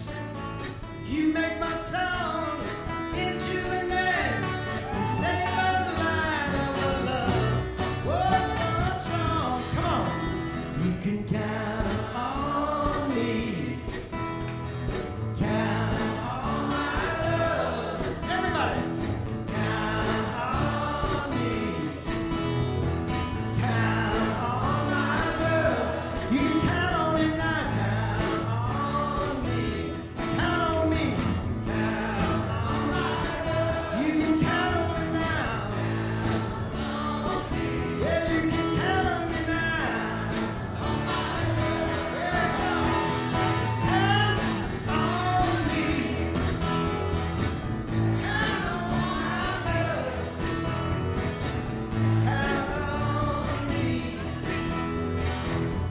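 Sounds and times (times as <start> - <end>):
man singing: 0.0 - 14.4, 15.1 - 47.2, 47.9 - 51.1, 51.9 - 55.0
acoustic guitars strummed: 0.0 - 55.9
double bass plucked: 0.0 - 55.9.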